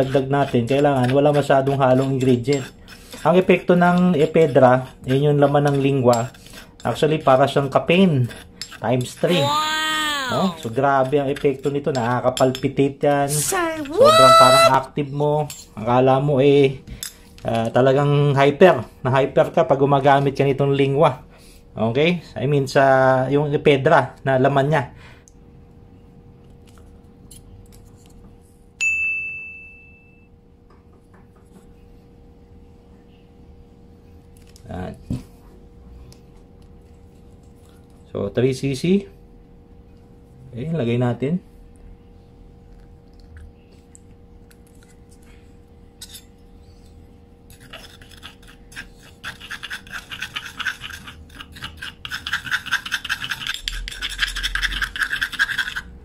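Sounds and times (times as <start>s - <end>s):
metal spoon scraping in mortar: 0.0s - 9.3s, 10.5s - 12.7s, 46.0s - 46.3s, 47.5s - 55.9s
bright ringing ding: 28.8s - 30.3s.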